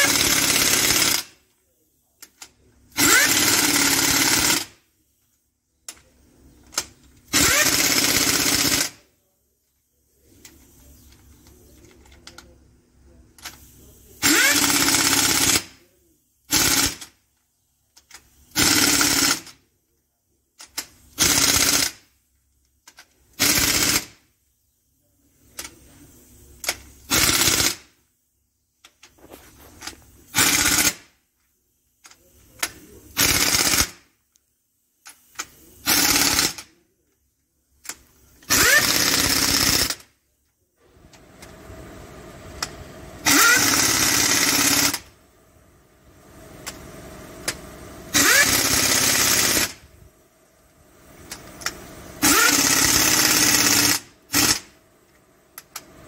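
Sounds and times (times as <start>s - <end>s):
air impact wrench hammering: 0.0s - 1.4s, 2.9s - 4.8s, 6.8s - 9.0s, 14.2s - 15.8s, 16.5s - 17.2s, 18.5s - 19.6s, 20.7s - 22.1s, 23.3s - 24.2s, 26.7s - 28.0s, 30.3s - 31.2s, 32.6s - 34.1s, 35.1s - 36.8s, 37.9s - 40.1s, 42.6s - 45.2s, 47.4s - 49.8s, 51.2s - 54.8s.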